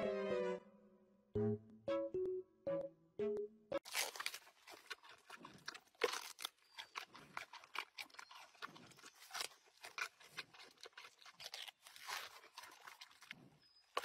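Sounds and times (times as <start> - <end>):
panda crunching bamboo: 3.8 - 14.0
soft munching: 3.9 - 14.0.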